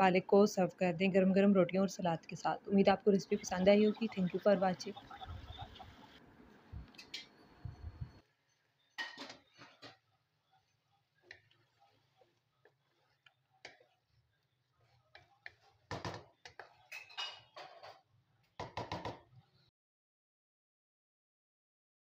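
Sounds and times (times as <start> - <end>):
spatula scraping a pan: 11.2 - 14.2, 14.8 - 18.1.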